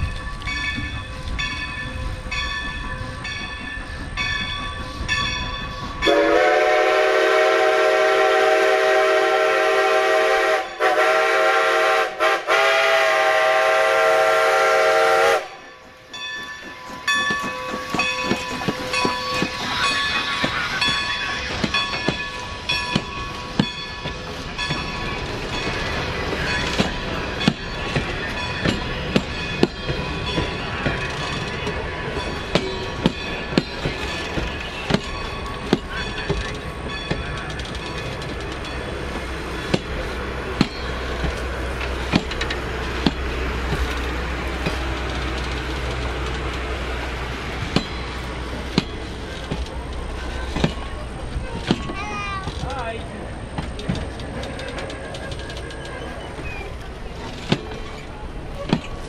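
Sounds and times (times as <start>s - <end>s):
crossing bell ringing: 0.0s - 6.5s, 15.5s - 51.3s
train wheels clicking on rail joints: 0.0s - 59.0s
steam whistle blast: 6.0s - 15.6s.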